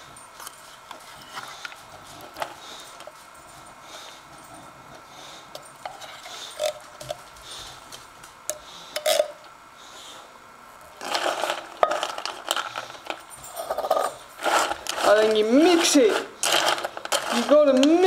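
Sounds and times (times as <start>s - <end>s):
spoon scraping metal bowl: 13.6s - 17.8s.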